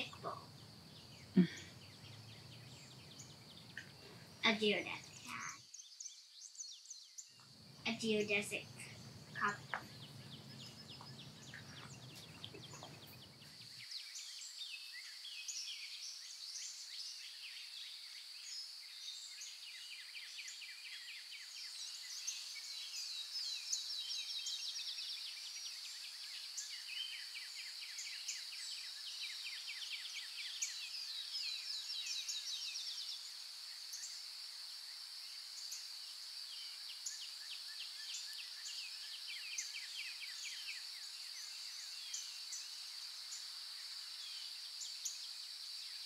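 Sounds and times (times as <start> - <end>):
birds chirping: 0.0 - 14.6.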